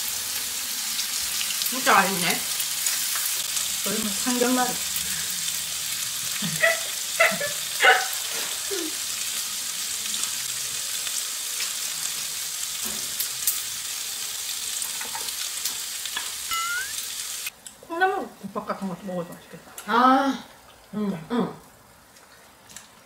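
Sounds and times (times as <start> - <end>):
meat sizzling in a pan: 0.0 - 17.6.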